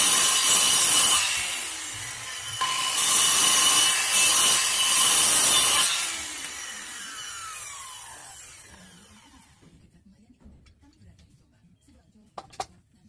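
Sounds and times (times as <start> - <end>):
circular saw cutting wood: 0.0 - 9.6.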